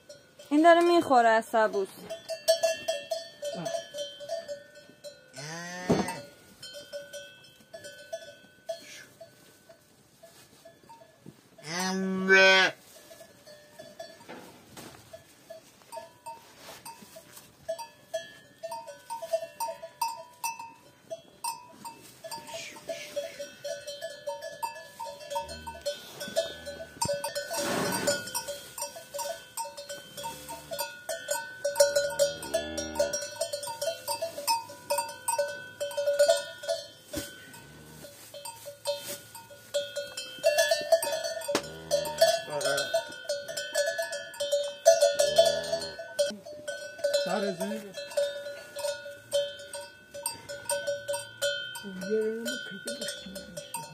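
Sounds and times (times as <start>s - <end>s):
cattle bell clinking: 0.0s - 53.9s
cow lowing: 25.3s - 28.5s.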